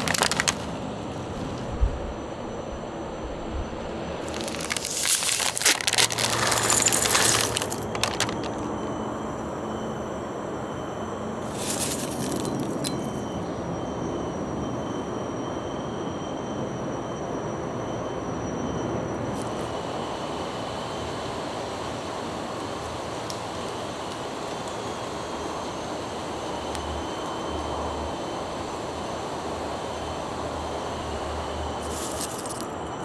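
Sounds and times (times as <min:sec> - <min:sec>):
crisp snacks rattling into bowl: 0:00.0 - 0:00.8, 0:04.3 - 0:08.8, 0:11.5 - 0:13.2, 0:31.8 - 0:32.7
plastic snack packet crinkling: 0:00.0 - 0:00.8, 0:04.2 - 0:08.8, 0:11.5 - 0:12.9, 0:31.8 - 0:32.6
steady background noise: 0:00.0 - 0:33.0.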